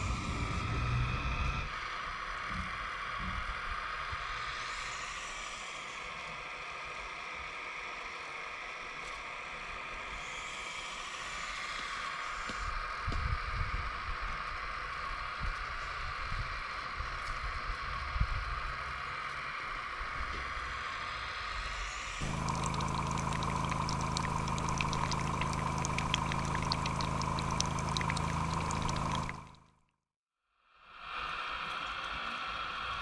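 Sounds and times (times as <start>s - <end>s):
steady low hum: 19.8s - 29.7s
hydraulic pump whining: 22.2s - 29.6s
water pouring and splashing: 22.2s - 29.6s.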